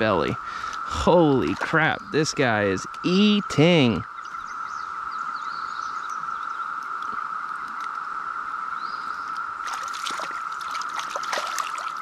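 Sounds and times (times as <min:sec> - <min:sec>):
stream trickling: 0:00.0 - 0:05.1, 0:09.2 - 0:12.0
cicada chorus drone: 0:00.0 - 0:12.0
fish splashing water: 0:09.6 - 0:12.0.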